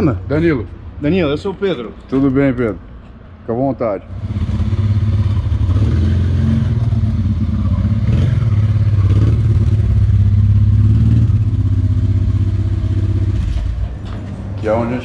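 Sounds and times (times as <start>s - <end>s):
motorcycle engine at low revs: 4.1s - 14.2s.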